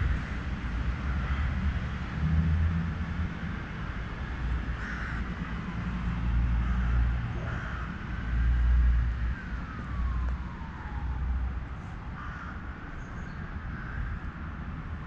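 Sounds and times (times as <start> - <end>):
wind rumble on microphone: 0.0 - 15.0
crows cawing: 1.0 - 1.6, 4.8 - 5.4, 6.6 - 9.8, 12.1 - 14.3.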